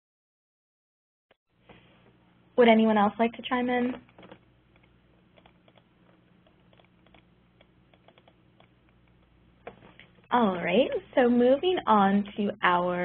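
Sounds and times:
low steady hum: 1.6 - 13.0
keyboard typing: 4.1 - 10.3.

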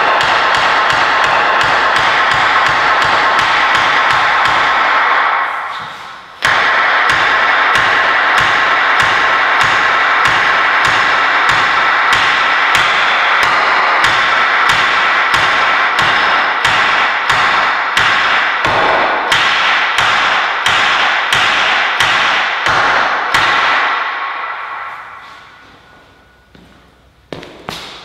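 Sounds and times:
hammer striking metal pipe: 0.0 - 26.5
metal pipes ringing: 0.0 - 27.2.

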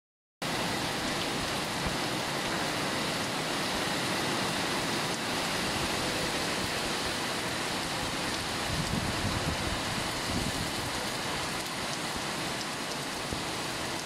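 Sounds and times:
driving rain: 0.4 - 14.0
strong wind: 0.5 - 12.4.

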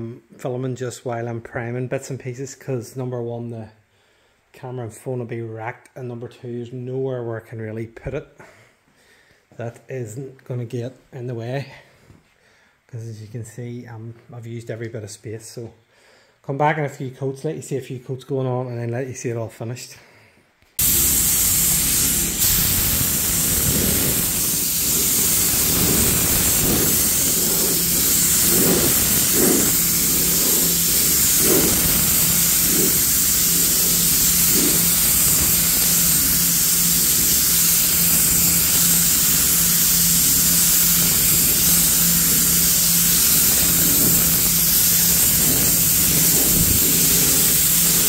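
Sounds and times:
low hum: 20.8 - 48.0
paint spray gun hissing: 20.8 - 48.0.

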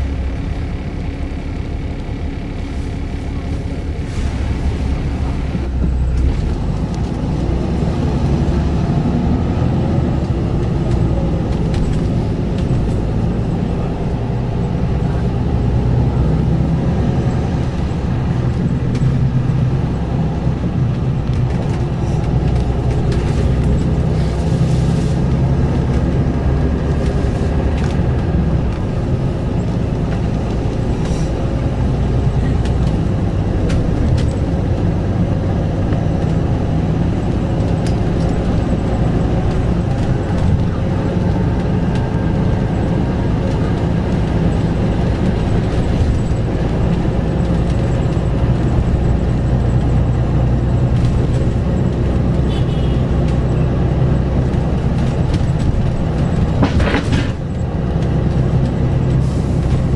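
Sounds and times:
bus engine running: 0.0 - 59.9
road noise: 0.0 - 59.9.

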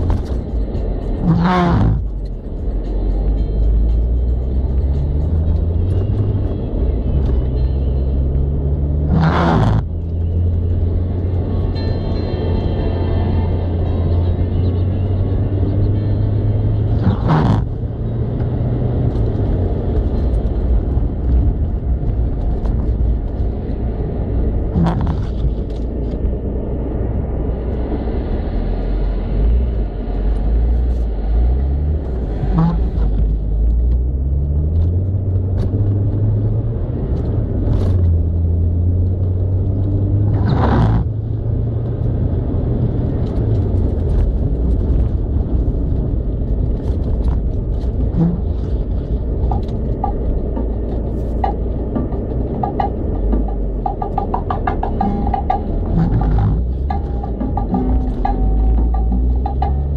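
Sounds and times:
car engine running hard: 0.0 - 59.9
tyres rumbling on snow: 0.0 - 59.9.

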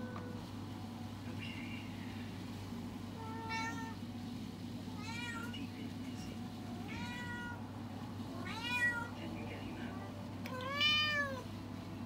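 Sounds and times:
steady low hum: 0.0 - 12.0
cat meowing: 3.2 - 4.0, 4.9 - 5.5, 6.8 - 7.6, 8.4 - 9.1, 10.5 - 11.5.

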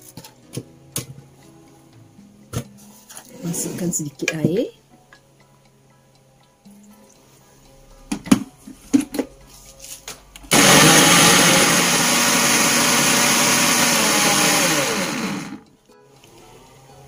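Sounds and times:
blender motor grinding: 10.5 - 15.6.

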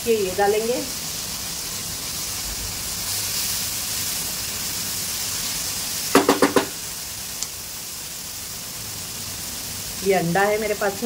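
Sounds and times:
vegetables sizzling in oil: 0.0 - 11.0
spatula rapping pan: 6.2 - 6.8.

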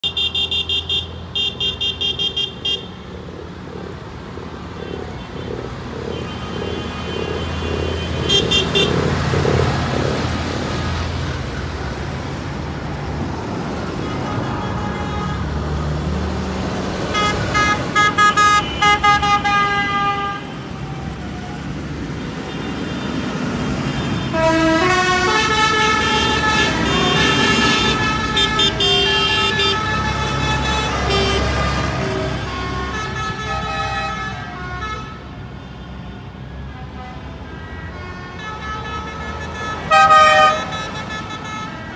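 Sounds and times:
tractor horns tooting: 0.0 - 3.1, 4.8 - 9.9, 14.0 - 15.7, 17.1 - 20.9, 22.4 - 35.3, 36.8 - 41.9
tractor engines running: 0.0 - 14.4.

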